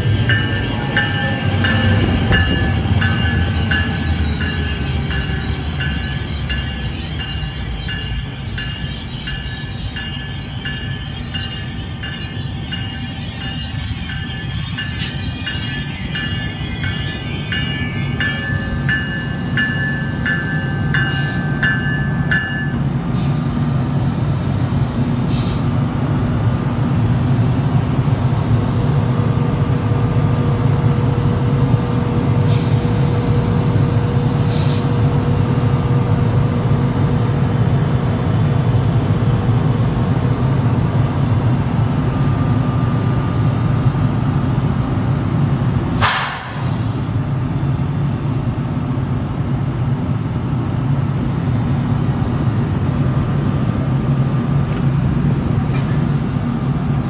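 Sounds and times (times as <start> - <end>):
bell ringing: 0.2 - 22.8.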